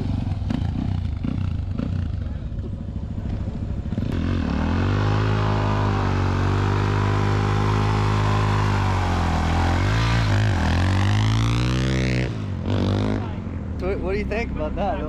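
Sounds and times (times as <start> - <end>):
car engine running high revs: 3.9 - 13.3.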